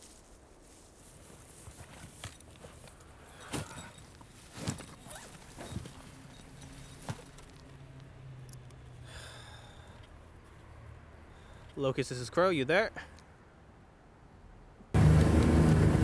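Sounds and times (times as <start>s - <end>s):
footsteps on grass: 0.0s - 7.6s
backpack gear rustling and knocking: 1.6s - 7.8s.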